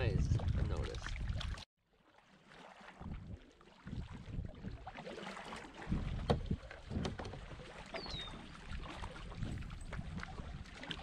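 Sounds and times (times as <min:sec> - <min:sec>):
wind rumbling on microphone: 0:00.0 - 0:01.6, 0:03.0 - 0:05.0, 0:05.8 - 0:11.0
kayak paddle splashing water: 0:00.2 - 0:11.0.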